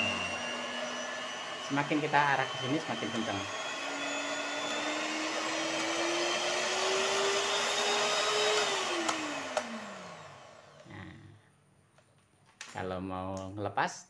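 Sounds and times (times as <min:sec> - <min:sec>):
hand mixer motor whining: 0:00.0 - 0:11.2.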